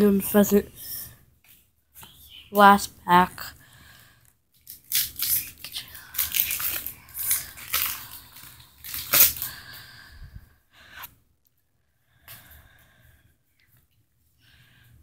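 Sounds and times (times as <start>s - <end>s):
foil wrapper crinkling and tearing: 4.6s - 9.6s.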